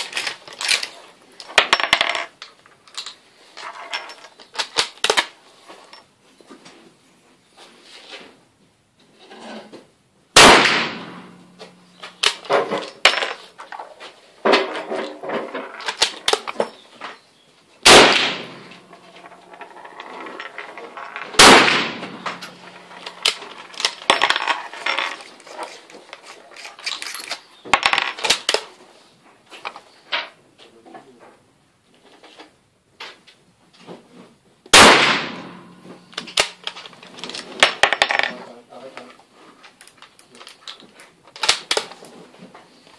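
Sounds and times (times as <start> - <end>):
rifle shots echoing: 10.4 - 12.5, 17.8 - 24.3, 34.8 - 36.6
brass cases landing: 10.7 - 13.8, 17.9 - 28.3.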